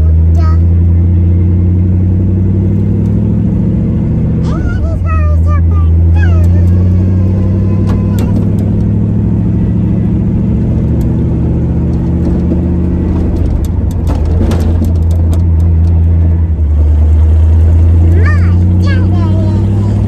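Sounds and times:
car engine drone from cabin: 0.0 - 20.0
clicks and rattles: 13.2 - 16.3.

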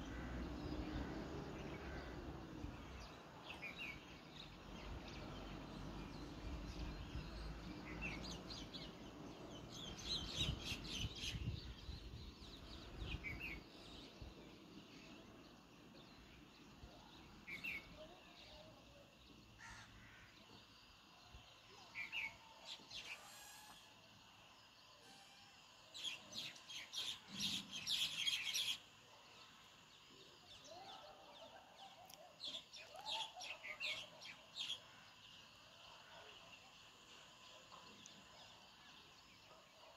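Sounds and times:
sparrows chirping: 26.0 - 39.9.

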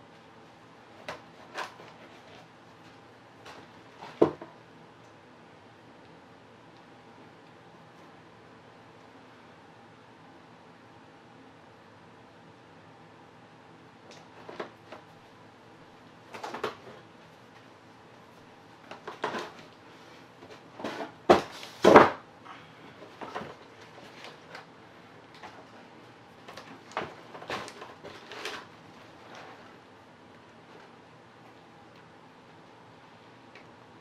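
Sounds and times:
board knocking and clunking: 3.5 - 4.5, 20.4 - 22.2.

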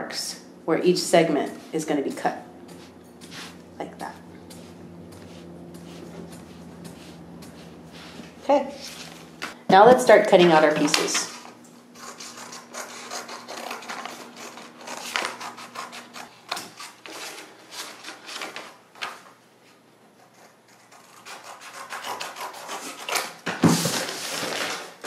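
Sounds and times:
scissors cutting cardboard: 12.0 - 18.6, 20.2 - 24.8
cardboard scraping and rustling: 23.6 - 25.0.

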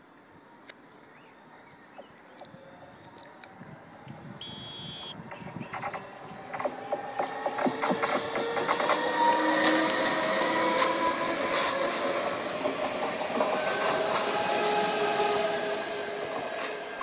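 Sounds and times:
train wheels on rails: 5.2 - 17.0
sharp clicks: 5.3 - 9.0.

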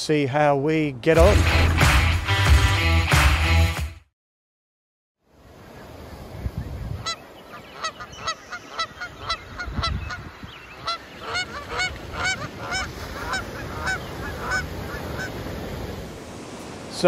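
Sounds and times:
geese honking in flight: 7.0 - 15.4.

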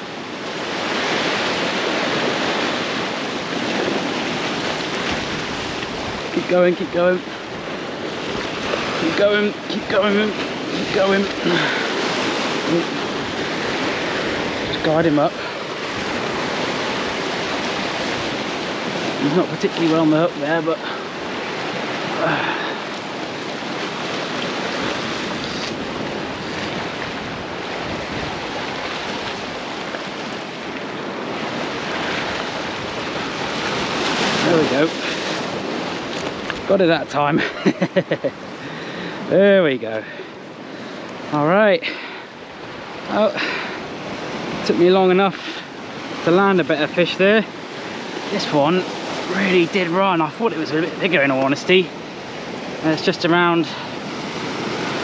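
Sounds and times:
sea waves surging over rocks: 0.0 - 55.0.

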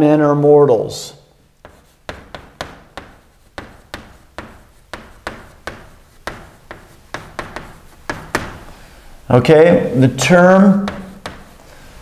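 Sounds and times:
chalk scraping on chalkboard: 1.5 - 8.8, 10.2 - 12.0
chalk tapping on chalkboard: 1.6 - 8.8, 10.7 - 11.7.

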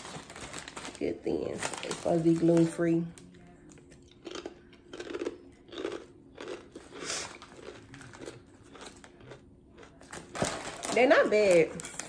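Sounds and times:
person chewing crackers: 3.7 - 10.4.

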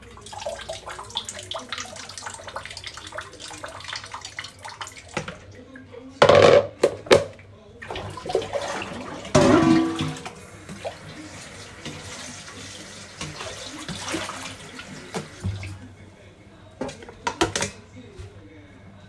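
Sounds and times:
tap water running into sink: 0.0 - 5.5, 6.3 - 15.9
metal pot knocking in sink: 6.2 - 7.4, 9.3 - 10.3.

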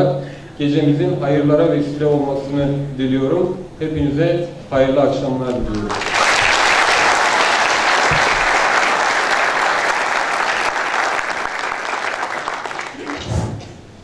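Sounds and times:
large audience applauding: 5.7 - 13.3.

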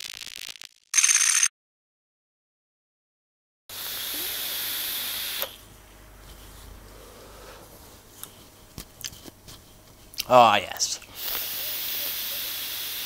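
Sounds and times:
vape draw hiss: 3.7 - 5.6, 11.1 - 13.0
vapour exhaled: 3.7 - 5.6, 11.1 - 13.0.

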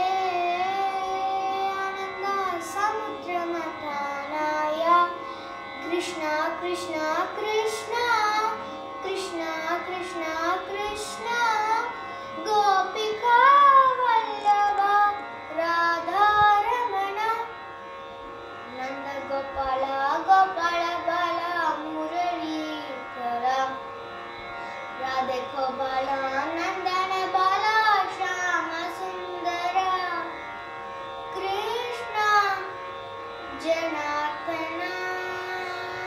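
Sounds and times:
girl singing: 0.0 - 17.6, 18.7 - 23.8, 25.0 - 30.4, 31.3 - 32.8, 33.5 - 36.0.

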